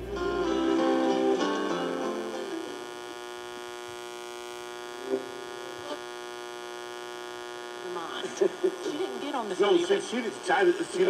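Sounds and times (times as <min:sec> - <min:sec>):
radio speaker hum: 0:00.0 - 0:11.0.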